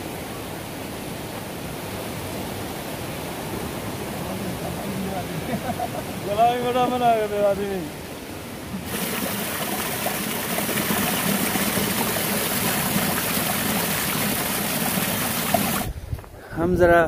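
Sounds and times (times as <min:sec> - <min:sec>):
stream water cascading over boulders: 0:00.0 - 0:16.0.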